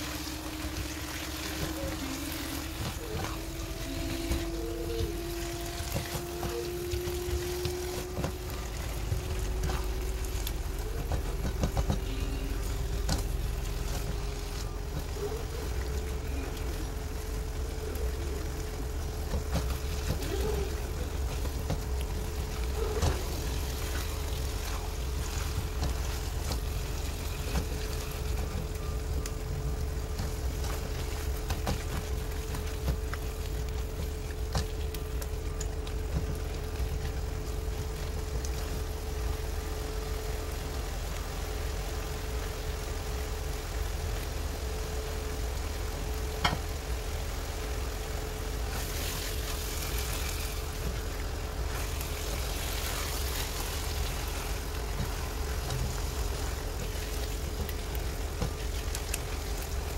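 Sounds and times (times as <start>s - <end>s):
mid-pitched drone: 0.0s - 31.2s
steady low hum: 0.0s - 59.9s.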